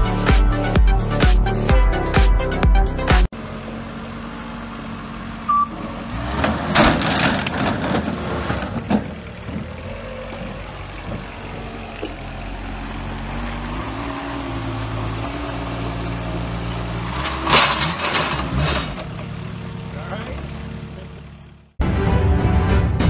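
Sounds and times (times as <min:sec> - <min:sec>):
forklift engine running: 0:00.0 - 0:21.8
forklift and pipes crashing: 0:06.2 - 0:12.3, 0:16.8 - 0:19.6.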